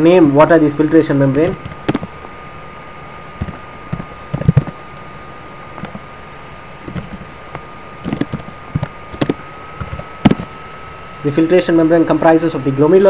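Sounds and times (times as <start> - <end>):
keyboard typing: 1.4 - 2.1, 3.4 - 4.8, 8.0 - 10.5.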